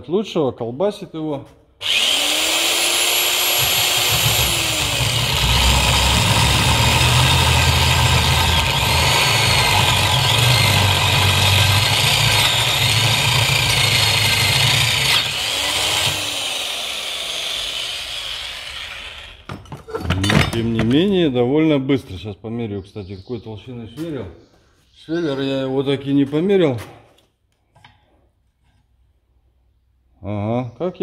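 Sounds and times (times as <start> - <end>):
drill bit cutting steel rumble: 1.8 - 19.4
electric drill motor whining: 1.8 - 19.5.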